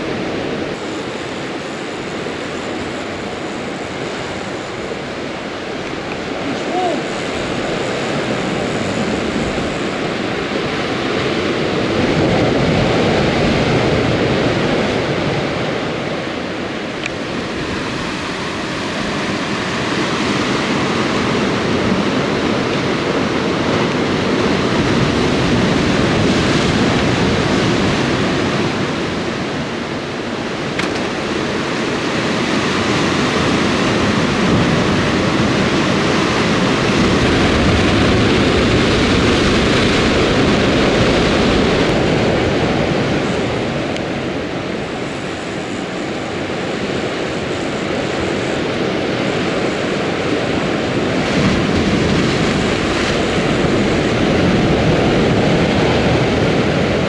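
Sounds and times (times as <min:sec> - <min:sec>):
surf breaking on rocks: 0:48.1 - 0:57.0.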